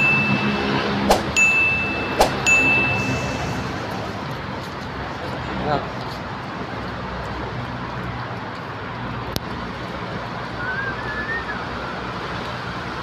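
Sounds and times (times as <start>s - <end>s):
high wavering chirp: 0.0s - 4.0s
street traffic with low hum: 0.0s - 13.0s
sharp click: 1.1s - 1.4s, 2.2s - 2.4s.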